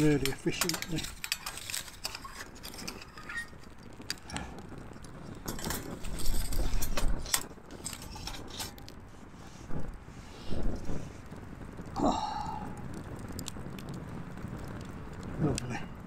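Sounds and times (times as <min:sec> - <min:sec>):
metal tongs clinking on stove: 0:00.0 - 0:03.5
metallic clatter and rumble: 0:00.0 - 0:09.1.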